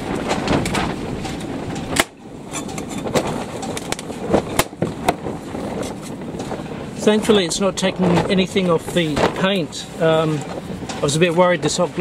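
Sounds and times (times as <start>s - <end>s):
sharp snap: 1.9s - 2.2s.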